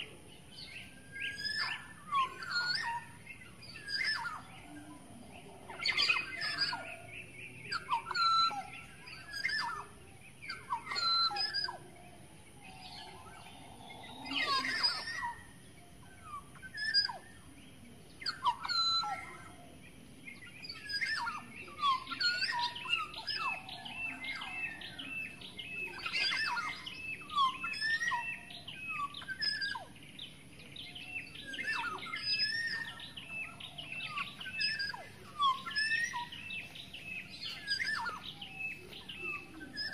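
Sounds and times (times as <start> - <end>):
birds chirping and whistling: 0.0 - 39.9
fast chattering bird trills: 31.2 - 39.9.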